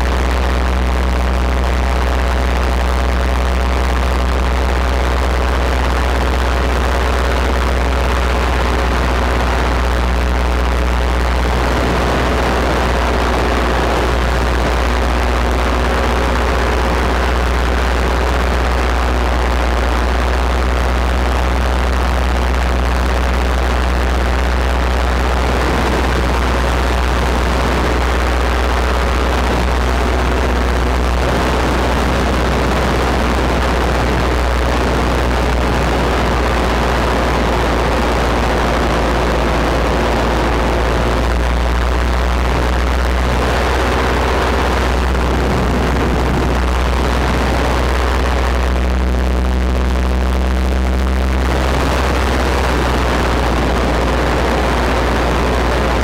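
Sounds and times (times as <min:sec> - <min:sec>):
paramotor engine and propeller: 0:00.0 - 0:56.0
wind rushing over microphone: 0:06.5 - 0:20.2, 0:23.0 - 0:48.8, 0:51.2 - 0:56.0.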